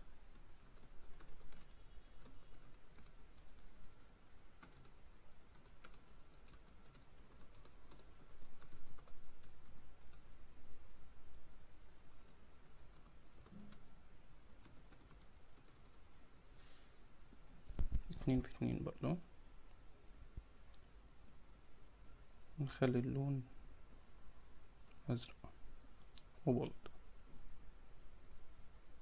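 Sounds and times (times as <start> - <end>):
computer keyboard typing: 0.3 - 10.4, 12.1 - 13.8, 14.4 - 16.0.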